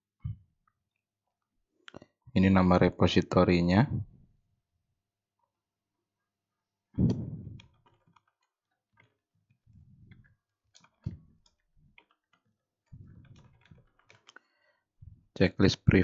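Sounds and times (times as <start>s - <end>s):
loud thump: 7.0s - 7.6s
keyboard typing: 10.0s - 14.4s.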